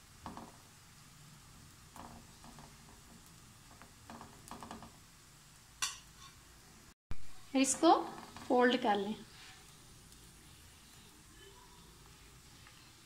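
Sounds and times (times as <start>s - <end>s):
low steady hiss: 0.0s - 13.0s
metal spoon scraping a pan: 5.8s - 6.4s.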